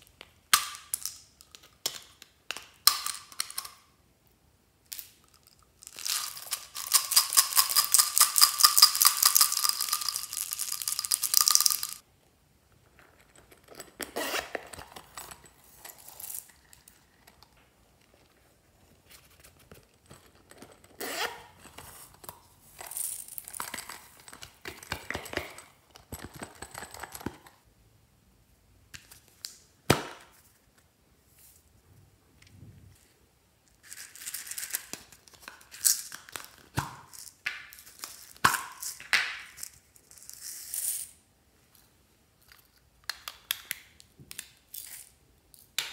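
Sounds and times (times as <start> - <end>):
beads rattling in plastic bottles: 5.2 - 12.0.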